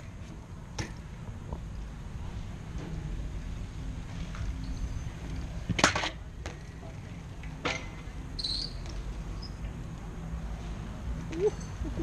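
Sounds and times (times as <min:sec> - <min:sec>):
bike wheels rumbling on concrete: 0:00.0 - 0:11.9.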